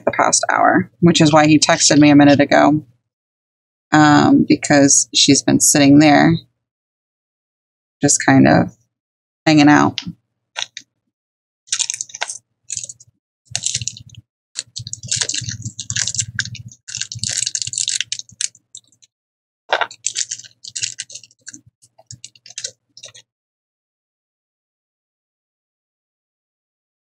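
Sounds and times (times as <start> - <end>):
beads clicking: 11.7 - 19.1, 19.7 - 23.2
plastic bags crinkling: 11.7 - 19.1, 19.7 - 23.2.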